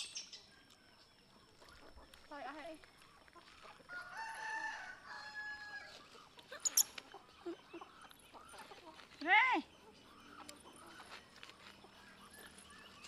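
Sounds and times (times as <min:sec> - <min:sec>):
rooster crowing: 0:03.9 - 0:06.0.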